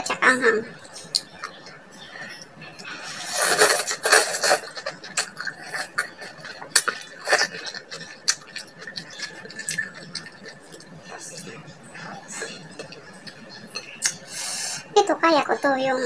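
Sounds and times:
slurping noodle-like greens: 0:02.9 - 0:10.8.

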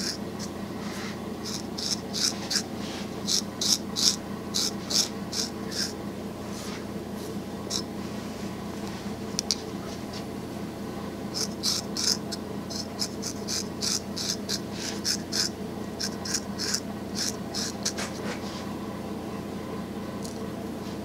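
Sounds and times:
barber tool scraping neck: 0:00.0 - 0:06.0, 0:11.4 - 0:18.4.

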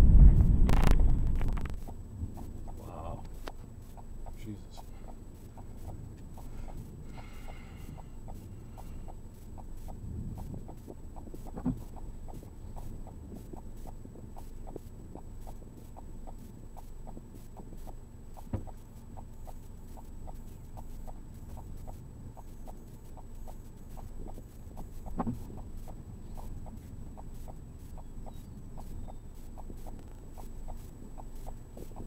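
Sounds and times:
low rumble: 0:00.0 - 0:03.4
steady ticking: 0:00.0 - 0:32.0.

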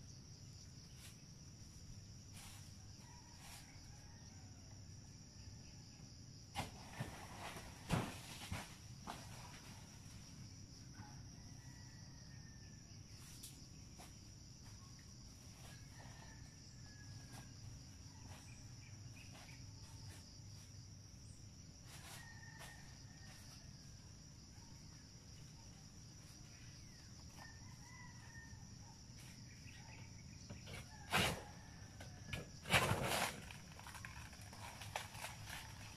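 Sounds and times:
high insect drone: 0:00.0 - 0:35.9
distant roosters crowing: 0:02.3 - 0:05.4, 0:08.6 - 0:13.3, 0:15.2 - 0:35.9.

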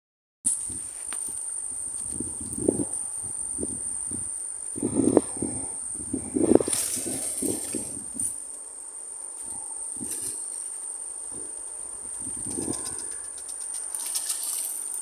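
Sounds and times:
high-pitched insect drone: 0:00.5 - 0:15.0
rapid clicks of fishing reel: 0:12.4 - 0:15.0.

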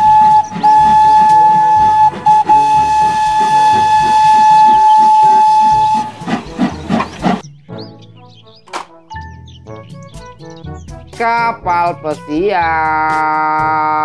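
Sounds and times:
steam locomotive whistle: 0:00.0 - 0:07.4.

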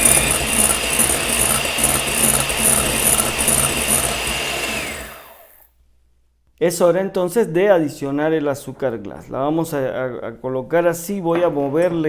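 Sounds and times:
electric hand mixer whining: 0:00.0 - 0:05.7.

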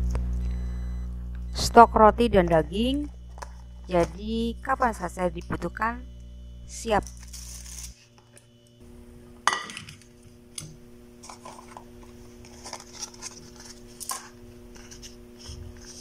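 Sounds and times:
steady low hum: 0:00.0 - 0:16.0
dishes clinking: 0:09.5 - 0:10.0.

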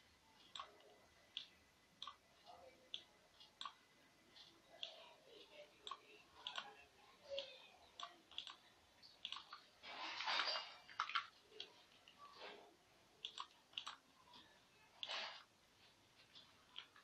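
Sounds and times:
computer mouse clicks: 0:00.4 - 0:02.2, 0:02.9 - 0:03.8, 0:04.4 - 0:05.0, 0:05.8 - 0:09.7, 0:10.9 - 0:12.2, 0:13.2 - 0:15.5, 0:16.4 - 0:17.0.

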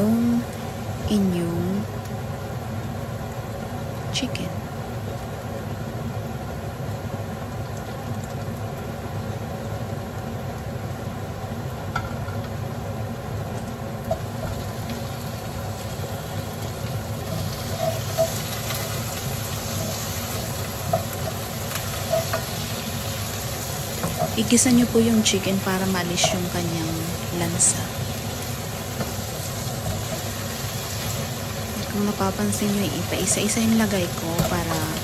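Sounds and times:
steady low hum: 0:00.0 - 0:35.0
food sizzling in pot: 0:08.9 - 0:35.0.

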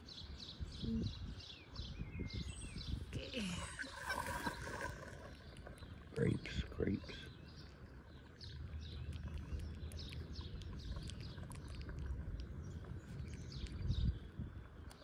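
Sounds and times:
small birds chirping: 0:00.0 - 0:15.0
steady low rumble: 0:05.2 - 0:15.0.

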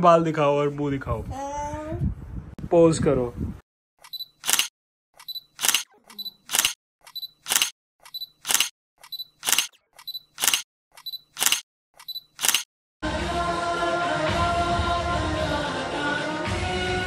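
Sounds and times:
camera shutter clicking: 0:04.4 - 0:12.7.

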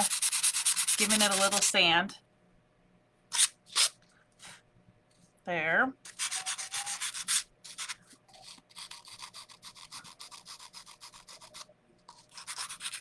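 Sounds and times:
sanding pad scratching paint: 0:00.0 - 0:01.7.

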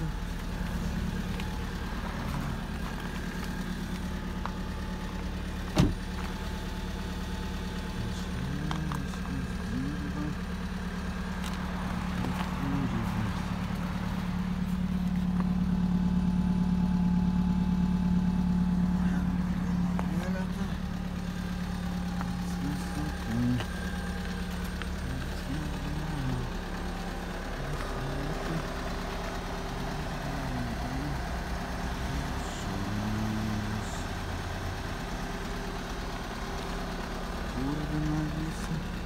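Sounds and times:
diesel engine idling: 0:00.0 - 0:39.0
car door shutting: 0:05.6 - 0:06.3.

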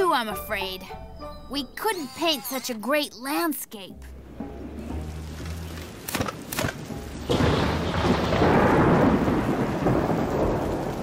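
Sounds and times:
rain: 0:04.2 - 0:11.0
thunder rumbling: 0:04.6 - 0:11.0
thunder cracks: 0:06.4 - 0:11.0.

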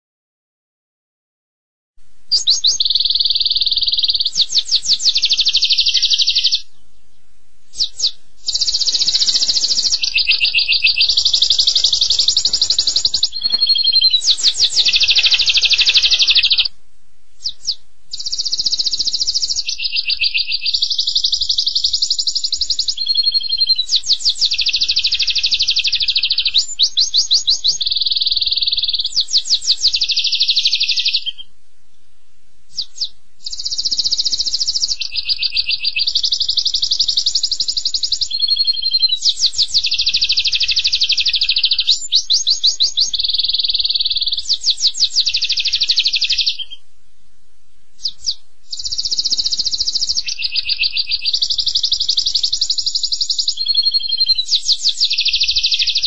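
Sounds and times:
songbird trilling: 0:02.3 - 0:16.7, 0:17.4 - 0:31.5, 0:32.7 - 0:46.8, 0:48.0 - 0:56.0.

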